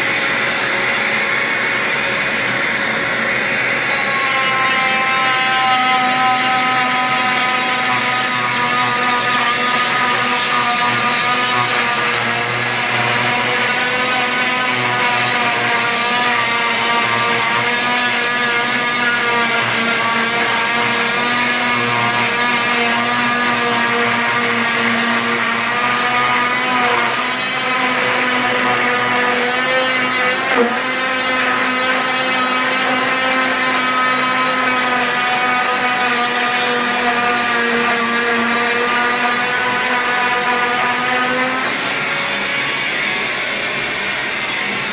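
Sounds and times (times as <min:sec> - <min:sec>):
cast saw whining: 0:00.0 - 0:44.9.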